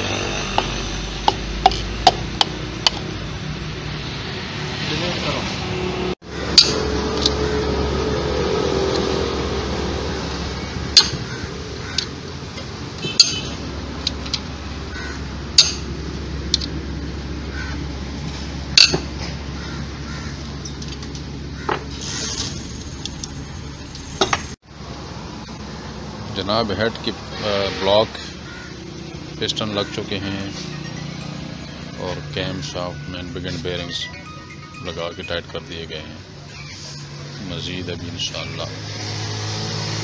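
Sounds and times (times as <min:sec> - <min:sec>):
steady workshop hum: 0:00.0 - 0:20.0
socket wrench clinking on metal: 0:13.0 - 0:14.5, 0:15.6 - 0:15.9.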